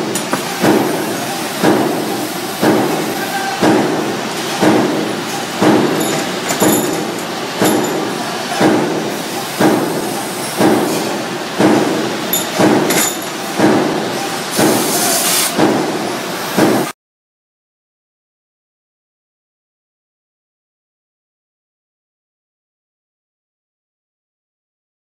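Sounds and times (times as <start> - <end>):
metalworking machine clanking: 0.0 - 16.9
metal clinks: 6.0 - 8.0, 12.3 - 13.4.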